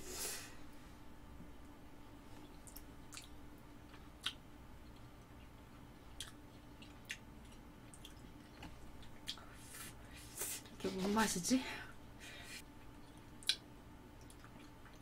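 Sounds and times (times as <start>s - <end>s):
person chewing noodles: 2.4s - 10.0s, 12.8s - 13.6s, 14.2s - 15.0s
wet mouth clicks: 6.2s - 8.2s, 13.4s - 13.6s.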